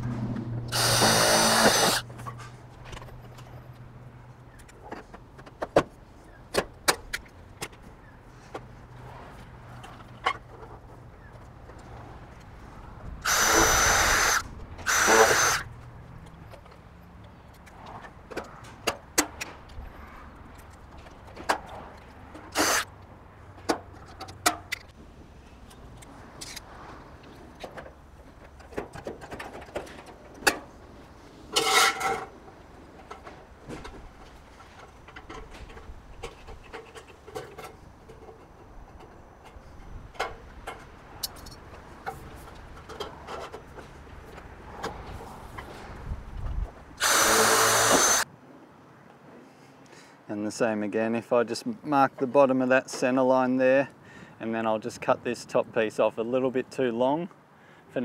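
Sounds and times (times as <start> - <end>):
light clicks and knocks of metal: 31.5 - 45.8.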